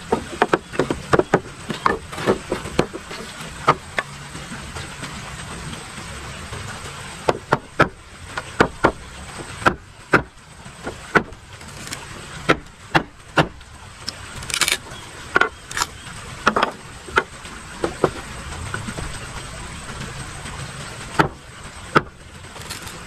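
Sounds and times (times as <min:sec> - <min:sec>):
blade chopping bamboo on wood: 0:00.0 - 0:04.1, 0:07.2 - 0:13.6, 0:21.2 - 0:22.9.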